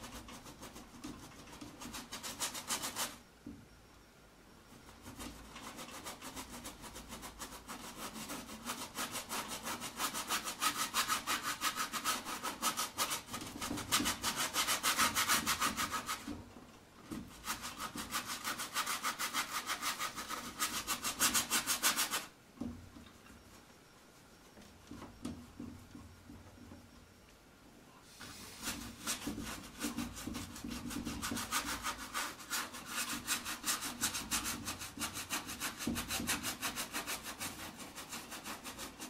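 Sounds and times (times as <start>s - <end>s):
paintbrush scrubbing on canvas: 0.0s - 3.2s, 4.8s - 16.4s, 17.2s - 22.3s, 28.1s - 39.0s.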